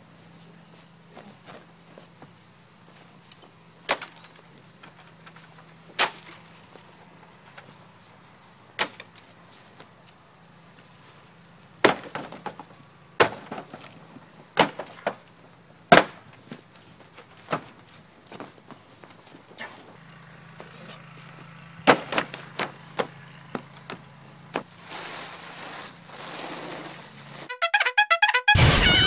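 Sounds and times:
stool smashing a pumpkin: 13.2 - 13.8, 15.9 - 16.2.

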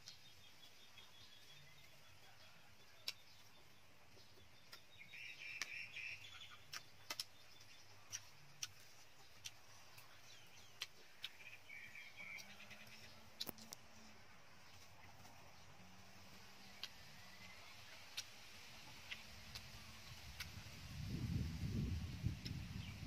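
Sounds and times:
faint bird chirping: 0.0 - 23.0
chewing: 6.6 - 15.4.

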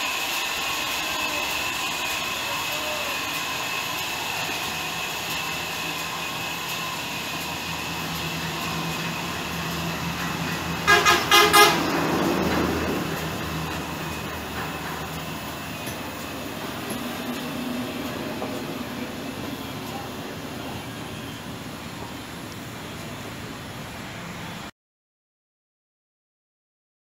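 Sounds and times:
band sawmill whining: 0.0 - 24.6
horn toots: 10.8 - 12.2.

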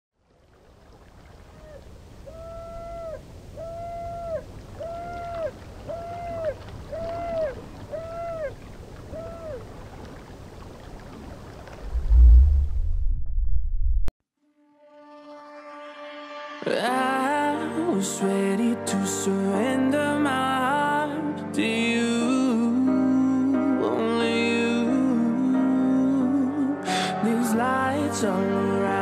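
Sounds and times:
hooting calls: 1.4 - 10.1
low rumble: 11.7 - 14.1
deep boom: 11.8 - 14.1.

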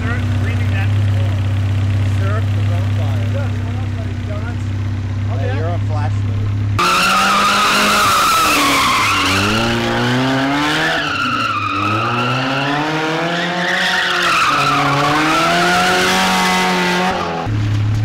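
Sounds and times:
car engine revving: 0.0 - 18.0
tyres screeching: 6.8 - 17.5.

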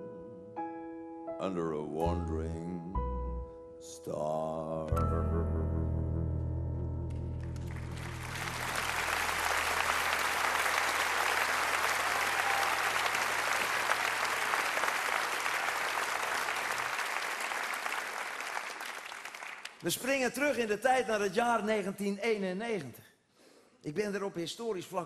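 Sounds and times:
audience applause: 7.5 - 19.8.

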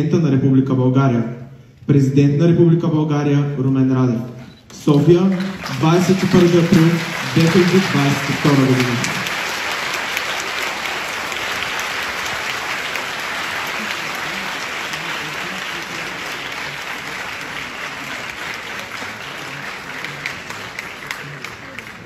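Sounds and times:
audience applauding: 4.7 - 22.0.

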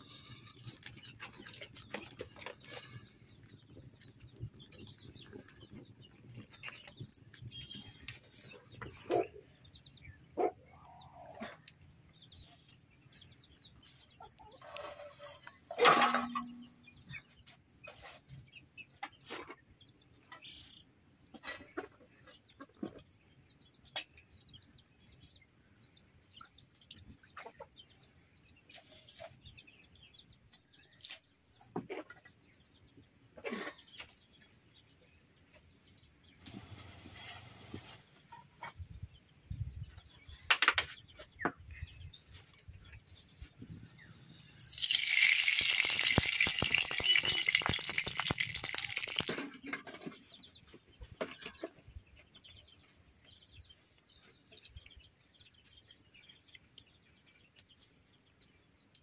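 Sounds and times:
chickens clucking: 0.0 - 24.4, 26.3 - 29.5, 31.5 - 34.8
steel pots clinking: 15.8 - 16.6, 44.6 - 49.4
wood fire crackling: 44.6 - 49.3.

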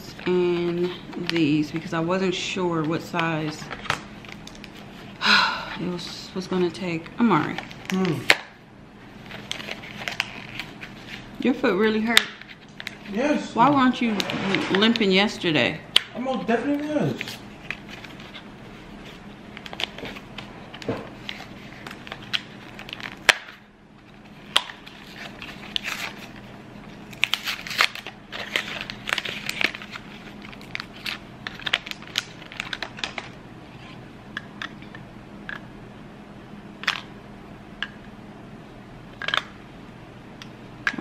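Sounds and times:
faint steady hum: 0.0 - 41.0
plastic crinkling: 9.2 - 13.3, 17.0 - 34.0
cardboard tearing: 24.5 - 26.4, 27.0 - 33.1.

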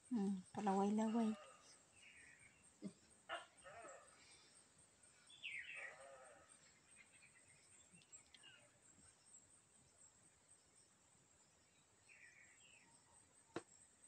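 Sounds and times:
faint animal calls: 1.0 - 4.6, 5.4 - 6.9.

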